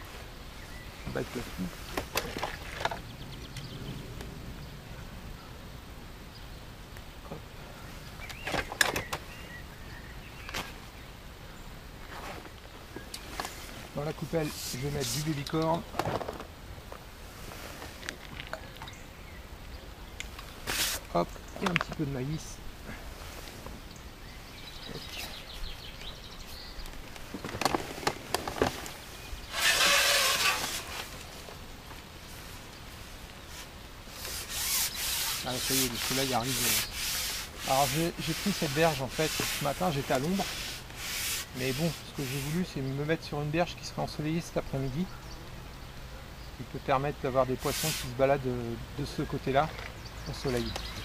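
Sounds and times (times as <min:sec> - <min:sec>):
quiet outdoor background: 0:00.0 - 0:51.0
rough rubbing rasp: 0:29.5 - 0:31.2, 0:34.1 - 0:42.8, 0:47.6 - 0:48.2.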